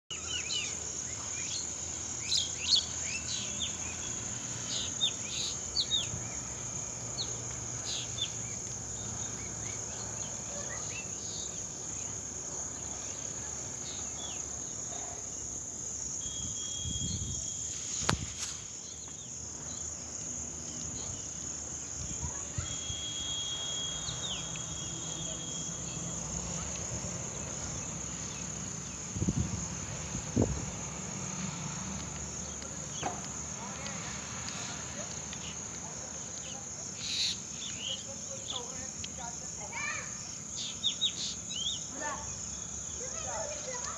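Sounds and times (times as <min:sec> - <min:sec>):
bird chirps: 0:00.1 - 0:06.4, 0:22.2 - 0:26.7, 0:36.4 - 0:38.8, 0:40.3 - 0:43.0
high-pitched insect chorus: 0:00.1 - 0:43.9.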